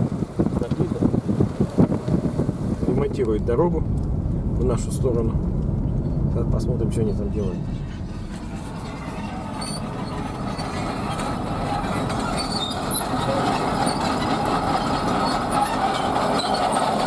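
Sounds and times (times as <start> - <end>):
car driving on dirt road: 0.0 - 17.0
bulldozer diesel engine: 3.8 - 17.0
crawler tracks clanking and squeaking: 5.6 - 17.0.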